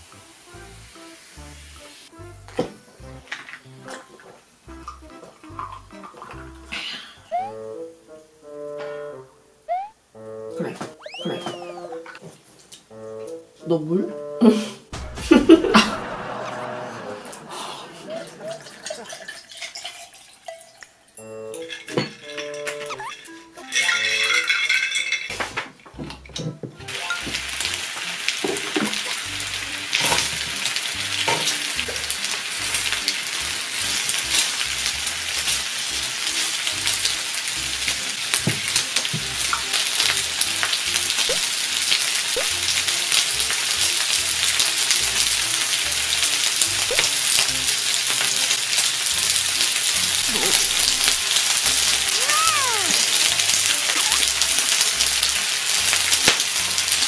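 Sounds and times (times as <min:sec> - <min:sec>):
meat sizzling on a grill plate: 0:00.0 - 0:02.1, 0:26.9 - 0:57.0.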